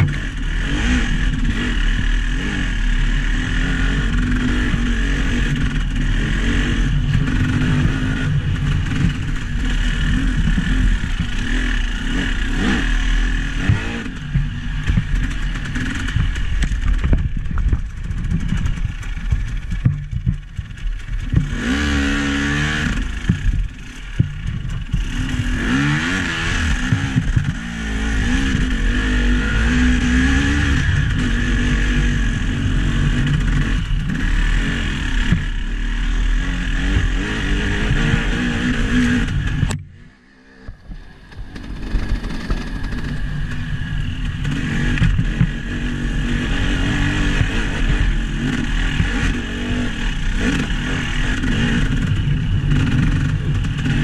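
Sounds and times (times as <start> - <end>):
vehicle engine revving: 0.0 - 54.0
knocks and rattles: 13.6 - 21.6.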